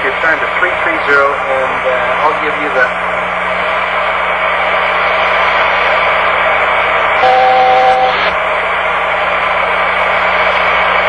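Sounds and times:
low hum: 2.8 - 11.0
two-note electronic tone: 7.2 - 8.4.

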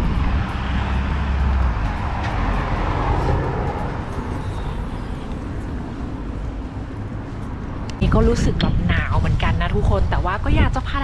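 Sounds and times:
car driving past: 0.0 - 7.8.

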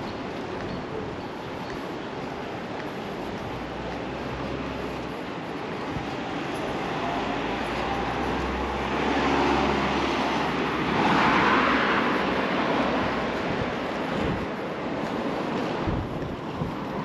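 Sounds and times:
vehicle passing: 6.2 - 17.0.

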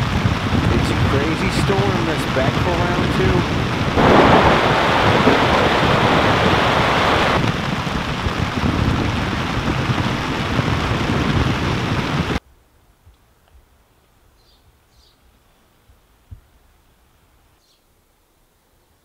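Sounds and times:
heavy rain on a tent: 0.0 - 12.4.

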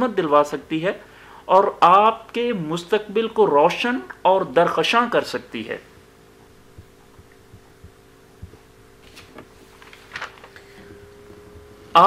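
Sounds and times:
low steady hum: 0.0 - 12.0
soft low thumps: 5.9 - 9.0.

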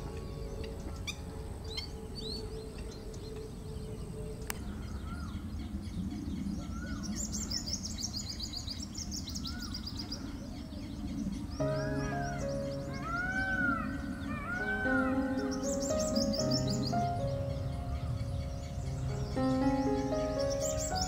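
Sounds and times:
low background noise: 0.0 - 21.0
small birds chirping: 0.0 - 21.0
rapid high twittering: 11.5 - 21.0.

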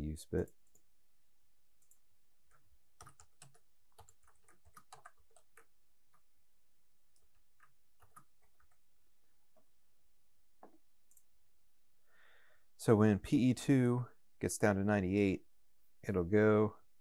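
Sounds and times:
faint keyboard typing: 0.4 - 0.9, 1.8 - 6.3, 7.1 - 8.9, 10.6 - 11.3.

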